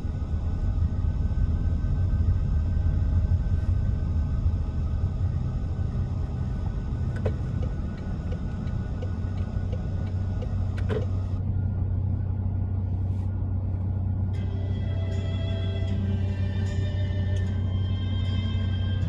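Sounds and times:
engine and road rumble: 0:00.0 - 0:19.0
soft regular ticking: 0:07.5 - 0:10.6.

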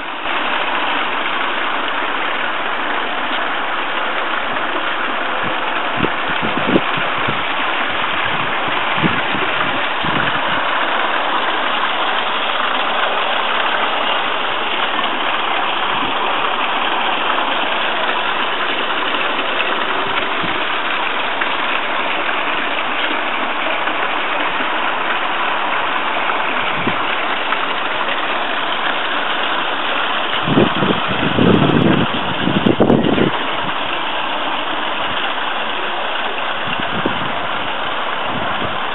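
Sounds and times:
water running from fountain: 0:00.0 - 0:38.9.

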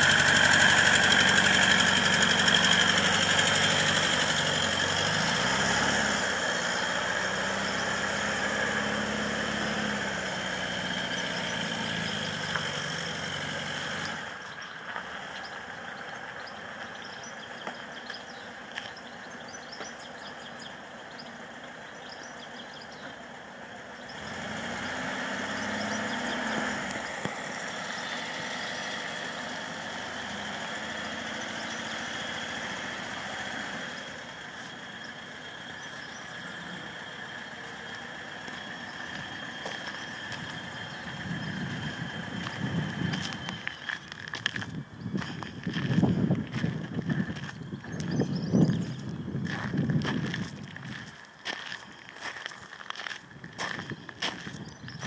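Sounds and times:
vehicle engine running: 0:00.0 - 0:55.0.

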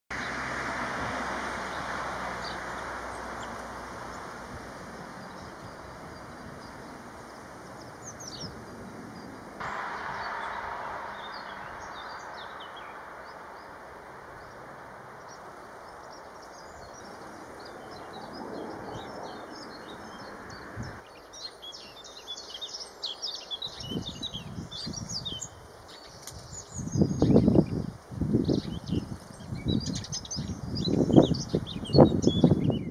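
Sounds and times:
steady outdoor hiss: 0:00.1 - 0:32.8
small birds chirping: 0:01.6 - 0:32.9
low thuds: 0:09.6 - 0:15.6.

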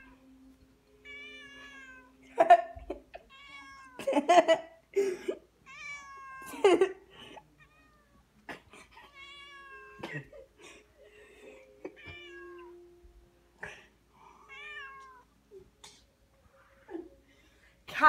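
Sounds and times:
cat meowing: 0:01.0 - 0:02.2, 0:03.2 - 0:04.0, 0:05.7 - 0:06.5, 0:07.6 - 0:08.2, 0:09.0 - 0:10.0, 0:11.9 - 0:12.8, 0:14.4 - 0:15.3.

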